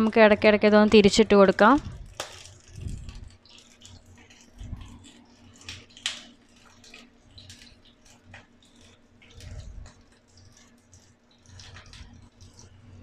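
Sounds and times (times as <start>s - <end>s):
oil sizzling in a pan: 0.8s - 13.0s.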